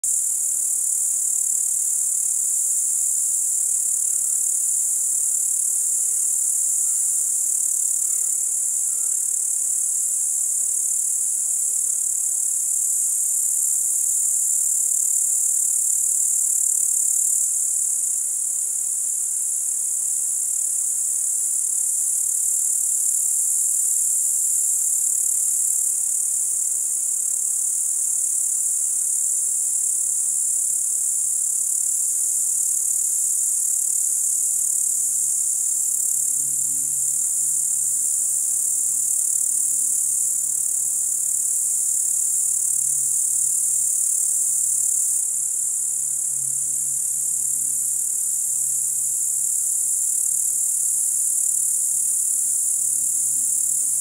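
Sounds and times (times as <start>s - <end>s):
crickets chirping: 0.0s - 54.0s.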